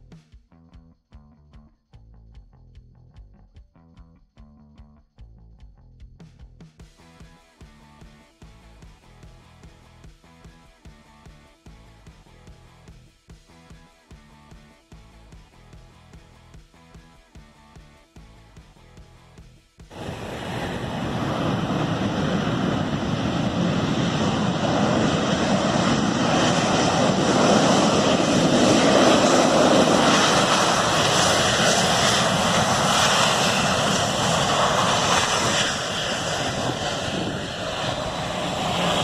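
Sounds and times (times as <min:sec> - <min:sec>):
jet engines reverse thrust roar: 0:19.9 - 0:39.0.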